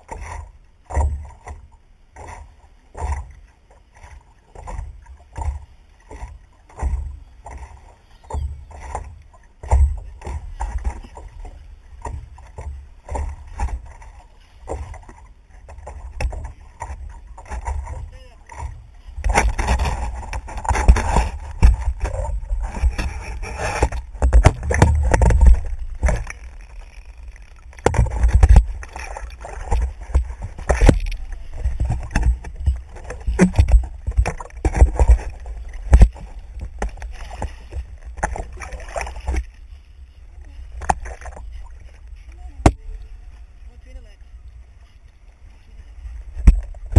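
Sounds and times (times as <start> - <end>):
water sloshing and splashing: 0.0 - 46.9
knocks on paddleboard: 8.2 - 11.3, 14.6 - 26.4, 27.8 - 39.5.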